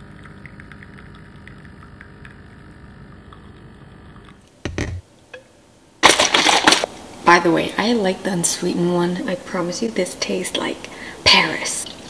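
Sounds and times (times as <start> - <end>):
espresso machine pump hum: 0.0 - 4.4
knock: 4.7 - 5.0.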